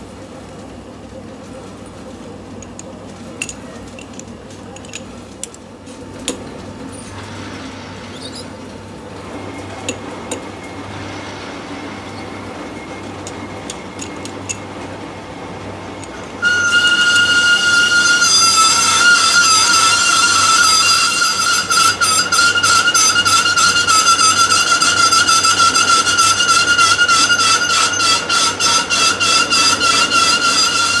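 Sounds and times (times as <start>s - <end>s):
low workshop hum: 0.0s - 31.0s
metal parts clinking: 2.6s - 5.6s, 13.3s - 14.6s.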